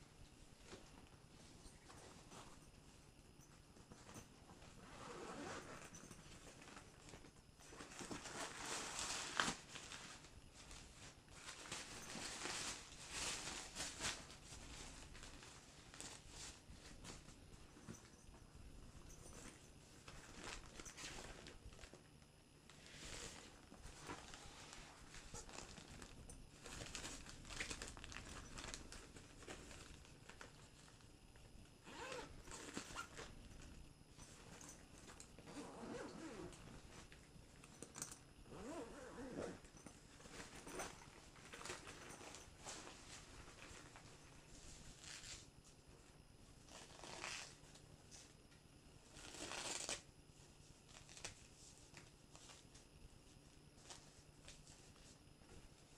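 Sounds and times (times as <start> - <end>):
fabric rustling: 0.3 - 22.0, 22.7 - 31.1, 31.9 - 47.8
zipper pulls: 4.8 - 6.2, 31.8 - 33.2, 35.5 - 36.6, 37.8 - 39.7, 46.7 - 47.6, 49.1 - 50.0.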